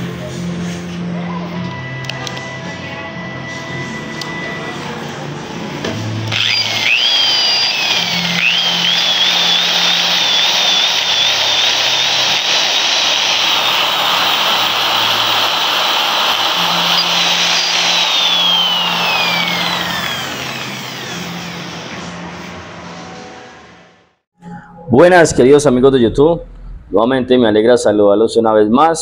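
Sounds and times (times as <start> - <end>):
electric drill whine: 6.2 - 22.6.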